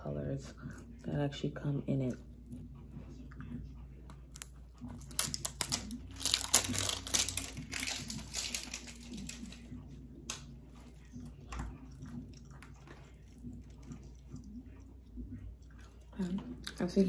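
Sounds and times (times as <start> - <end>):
packaging crinkling: 5.0 - 9.7.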